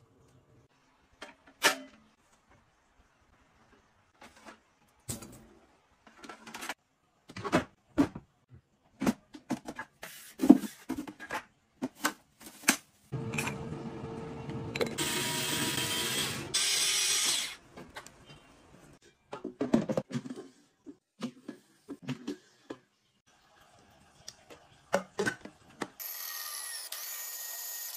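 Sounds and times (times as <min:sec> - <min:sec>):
electric food chopper whirring: 0:13.2 - 0:17.6.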